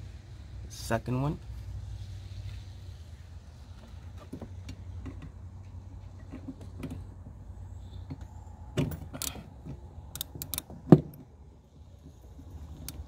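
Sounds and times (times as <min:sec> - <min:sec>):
ratchet wrench clicking: 0:10.1 - 0:10.7.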